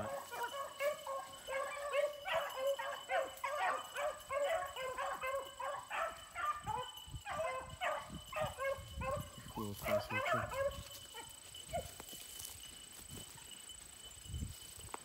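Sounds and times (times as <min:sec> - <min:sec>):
hounds baying: 0:00.0 - 0:12.6.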